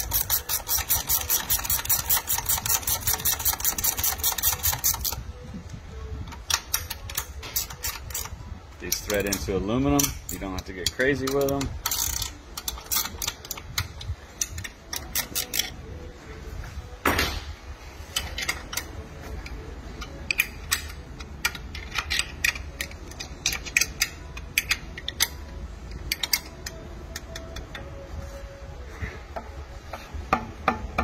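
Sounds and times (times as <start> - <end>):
hand ratchet clicking: 0.0 - 5.2, 6.3 - 15.8, 18.1 - 28.0
metal tools clinking: 8.9 - 16.0.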